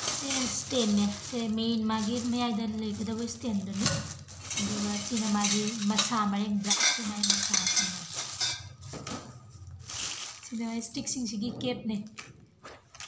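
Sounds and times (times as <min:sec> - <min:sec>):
plastic wrapping rustling: 0:00.0 - 0:11.4
metal tubes knocking and clinking: 0:04.4 - 0:08.7.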